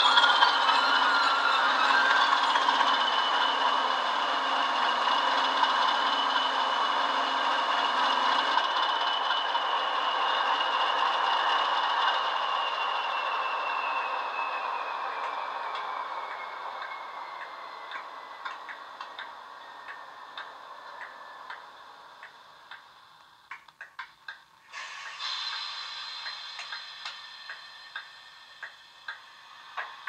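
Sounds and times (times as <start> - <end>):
model locomotive engine running down: 0.0 - 23.5, 24.6 - 30.0
high whine gliding downward: 0.0 - 23.6
slow regular ticks: 15.2 - 30.0
sudden hiss: 24.6 - 30.0.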